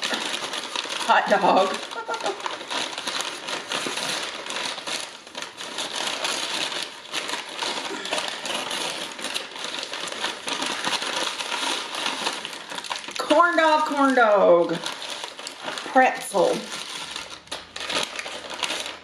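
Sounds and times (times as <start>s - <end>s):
paper bag rustling and crinkling: 0.0s - 19.0s.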